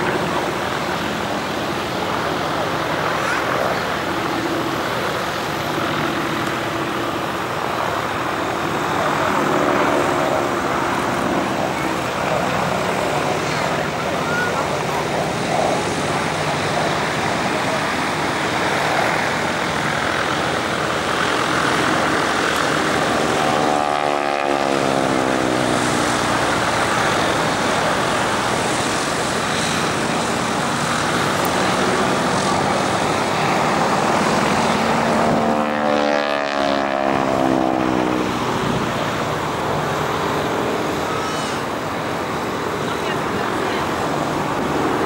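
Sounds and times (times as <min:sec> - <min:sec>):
propeller aircraft flying by: 0:00.0 - 0:45.0.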